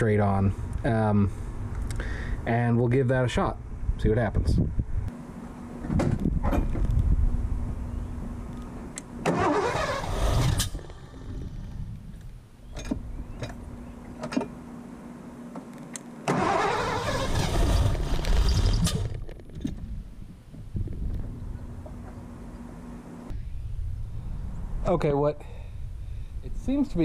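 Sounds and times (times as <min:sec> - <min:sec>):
car engine cranking and dying: 0:09.2 - 0:11.8, 0:16.3 - 0:19.2.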